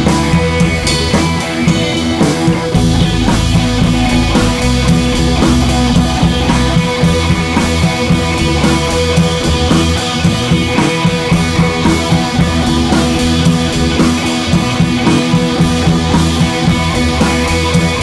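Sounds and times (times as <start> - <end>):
loud music over pa system: 0.0 - 18.0.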